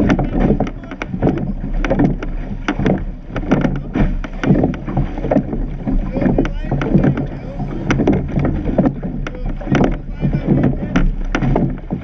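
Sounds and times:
oars knocking in rowlocks: 0.0s - 12.0s
oars splashing: 0.0s - 12.0s
rushing water: 0.0s - 12.0s
wind on microphone: 0.0s - 12.0s.

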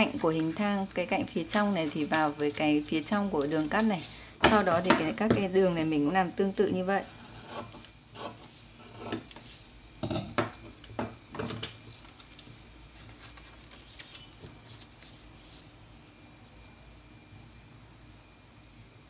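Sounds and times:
paper rustling: 11.8s - 16.1s.

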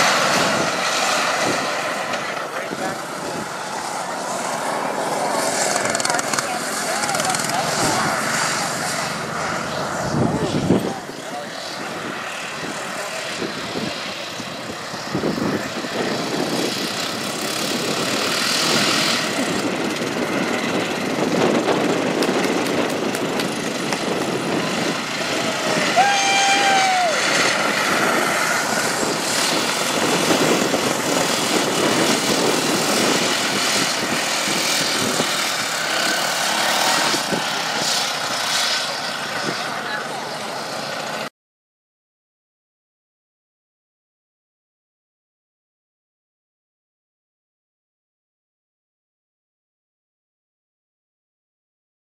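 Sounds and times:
small engines droning past: 0.0s - 41.3s.

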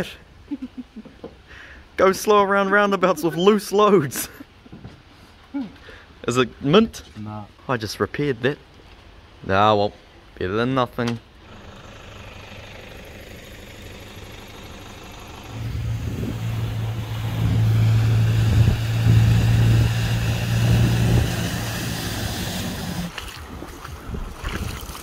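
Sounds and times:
steady low hiss: 0.0s - 11.5s
truck engine hum: 11.4s - 24.4s
water spraying: 15.6s - 25.0s.

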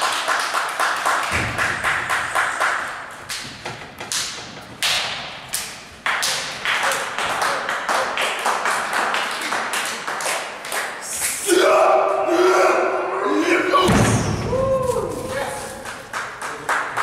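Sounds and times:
rapid sharp claps and slaps: 0.0s - 11.3s, 15.4s - 17.0s.

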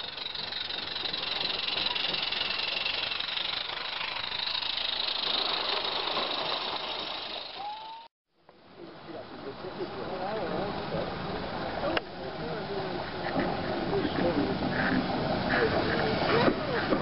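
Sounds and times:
steam hissing: 0.0s - 8.1s.

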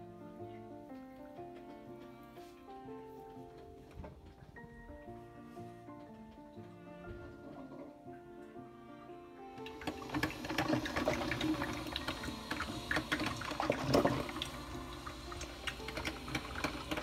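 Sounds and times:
music: 0.0s - 17.0s
coffee maker gurgling and sputtering: 9.7s - 17.0s.

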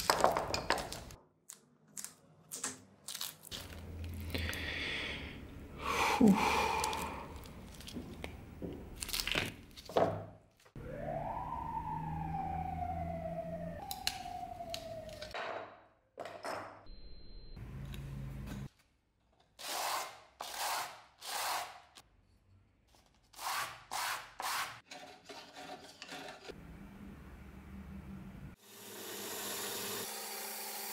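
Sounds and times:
long falling squeals: 10.8s - 15.4s.

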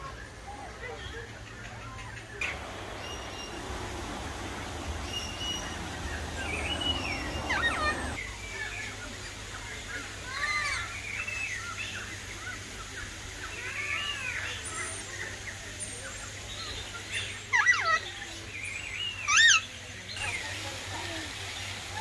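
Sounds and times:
loud bird calls: 1.3s - 8.3s
birds whistling and chirping: 1.7s - 8.7s.

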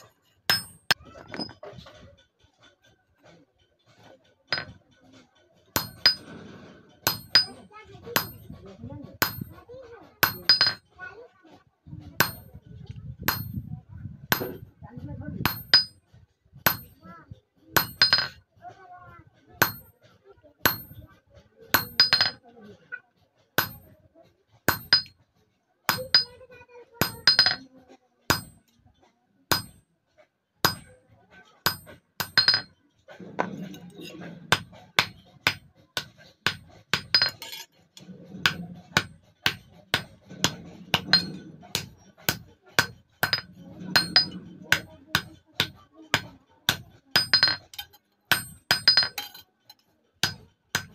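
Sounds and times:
hammer striking steel: 0.0s - 1.5s, 4.5s - 4.8s, 5.7s - 8.6s, 9.2s - 10.8s, 12.2s - 12.6s, 13.3s - 13.7s, 14.3s - 14.7s, 15.4s - 16.0s, 16.7s - 17.1s, 17.8s - 18.4s, 19.6s - 20.0s, 20.6s - 21.1s, 21.7s - 22.4s, 23.6s - 24.0s, 24.7s - 25.2s, 25.9s - 27.7s, 28.3s - 28.8s, 29.5s - 29.8s, 30.6s - 50.9s.

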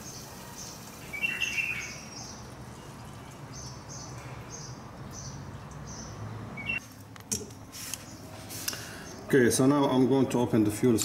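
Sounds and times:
small bird chirping: 0.0s - 6.8s.

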